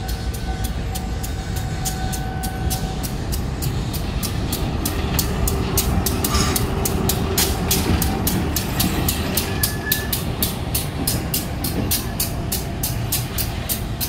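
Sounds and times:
locomotive engine rumble: 0:00.0 - 0:14.0
sharp high ticking: 0:00.0 - 0:14.0.

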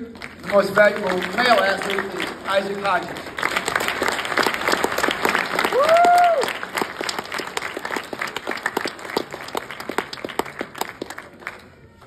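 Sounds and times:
audience applauding: 0:00.0 - 0:12.0
person whooping: 0:05.7 - 0:06.6.

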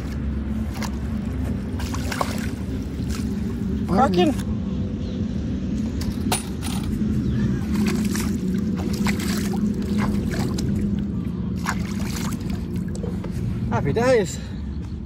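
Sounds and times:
low mechanical hum: 0:00.0 - 0:15.0
hands splashing in water: 0:01.7 - 0:03.5, 0:07.7 - 0:11.0, 0:11.6 - 0:13.1.

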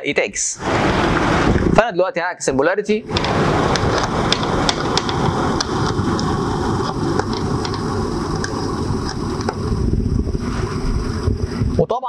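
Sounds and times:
test lead plugs clicking: 0:03.1 - 0:09.6.

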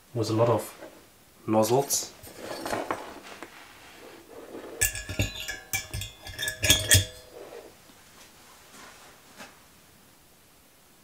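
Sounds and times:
metal housing clinking: 0:04.7 - 0:07.7.

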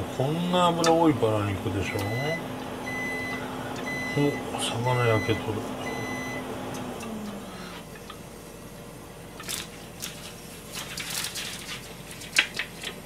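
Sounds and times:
raw meat slapping into pan: 0:09.4 - 0:13.0.

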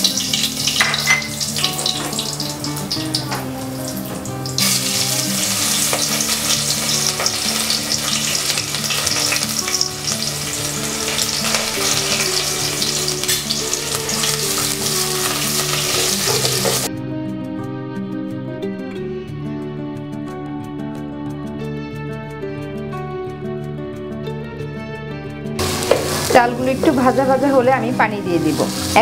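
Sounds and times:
onions sizzling in oil: 0:00.0 - 0:16.9, 0:25.6 - 0:29.0
soft background music: 0:00.0 - 0:29.0.

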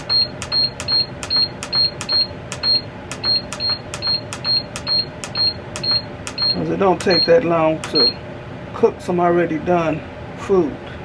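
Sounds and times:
short high beeps: 0:00.0 - 0:07.4, 0:08.0 - 0:08.2.

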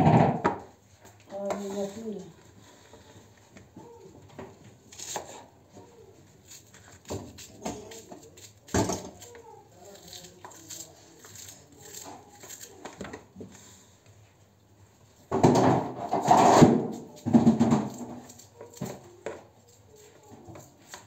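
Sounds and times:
knife scraping garlic: 0:04.9 - 0:13.8, 0:16.2 - 0:21.0.

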